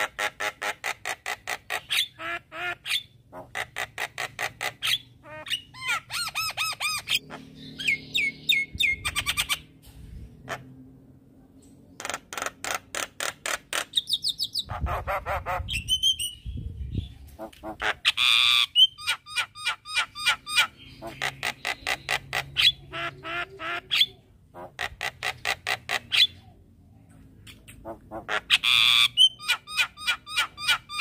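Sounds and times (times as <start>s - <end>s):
bird harsh rasping call: 27.8s - 31.0s.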